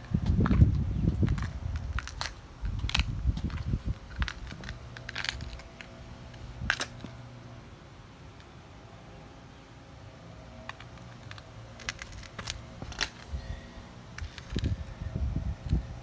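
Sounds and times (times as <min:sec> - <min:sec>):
sharp clicks and crackles: 0:00.0 - 0:07.2, 0:10.6 - 0:13.3, 0:14.1 - 0:14.9.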